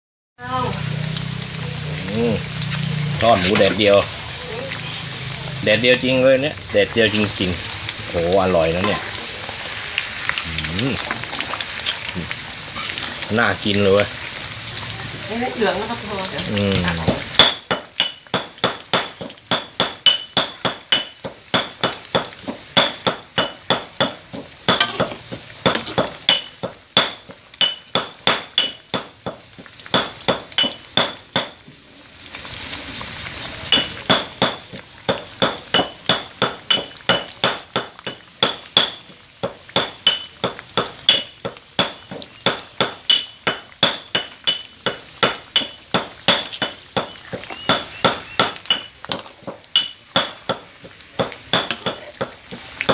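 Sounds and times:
oil sizzling: 0:00.4 - 0:52.9
metal spatula scraping a wok: 0:24.7 - 0:26.6.

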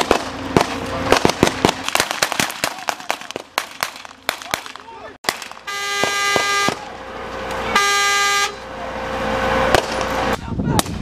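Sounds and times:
sharp crack: 0:00.0 - 0:07.6, 0:09.7 - 0:11.0
vehicle horn blasts: 0:05.6 - 0:07.0, 0:07.6 - 0:08.8.

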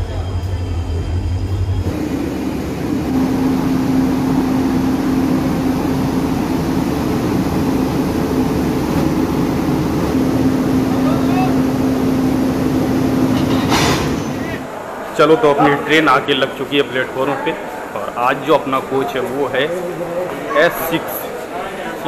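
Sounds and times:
train locomotive engine droning: 0:00.0 - 0:15.2.

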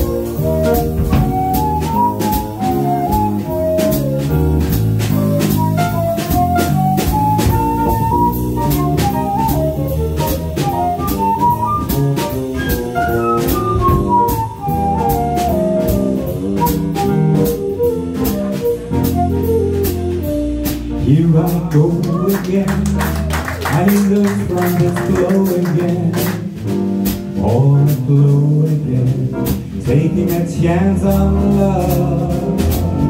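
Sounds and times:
wind instrument melody: 0:00.0 - 0:21.4, 0:31.3 - 0:33.0
double bass: 0:00.0 - 0:33.0
drum kit with cymbal strokes: 0:00.0 - 0:33.0.

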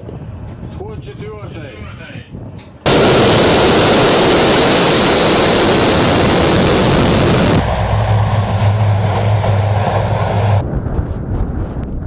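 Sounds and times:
jet engines at full power: 0:02.8 - 0:12.0
turboprop engines droning: 0:02.9 - 0:12.0.

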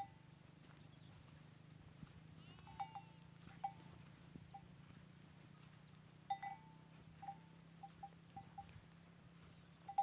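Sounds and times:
low steady hum: 0:00.0 - 0:10.0
sheep bells clinking: 0:00.0 - 0:10.0
faint sheep bleat: 0:02.3 - 0:03.6.

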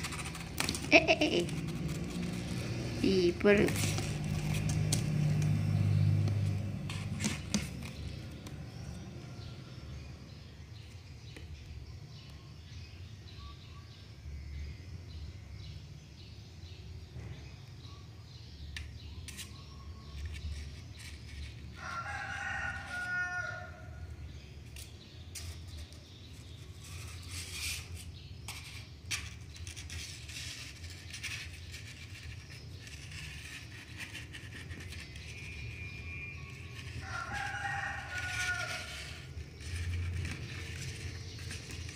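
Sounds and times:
claws scraping cardboard box: 0:00.0 - 0:02.9, 0:26.3 - 0:41.9
rooster crowing: 0:21.8 - 0:24.1, 0:36.8 - 0:39.3.

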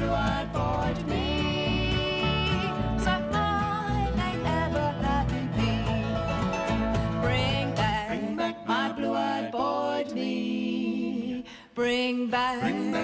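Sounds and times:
people singing: 0:00.0 - 0:06.4, 0:07.1 - 0:13.0
upright bass: 0:00.0 - 0:08.3
bluegrass band playing: 0:00.0 - 0:08.4.

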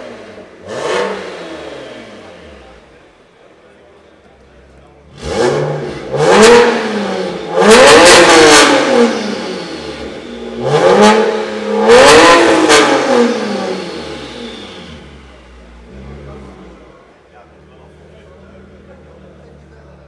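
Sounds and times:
car engine revving: 0:00.0 - 0:03.4, 0:04.9 - 0:20.0.

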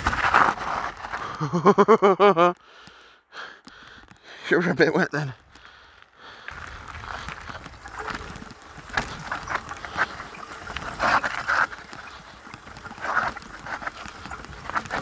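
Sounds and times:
bike knocking and rattling: 0:00.0 - 0:03.0, 0:03.6 - 0:15.0
tyre and wind rumble: 0:06.5 - 0:15.0.

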